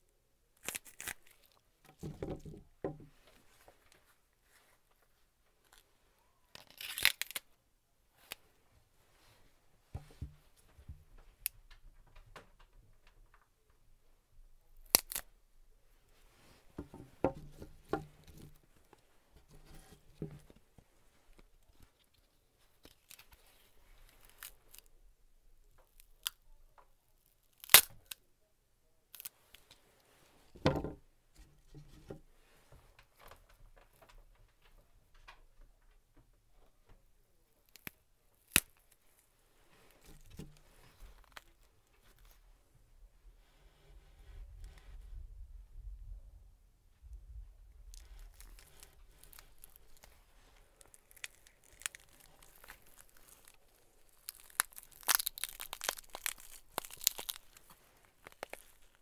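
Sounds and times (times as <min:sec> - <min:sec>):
celery stalks snapping and crunching: 0:00.6 - 0:01.6, 0:06.6 - 0:07.4, 0:14.8 - 0:15.2, 0:27.5 - 0:28.2, 0:48.0 - 0:50.1, 0:50.8 - 0:59.0.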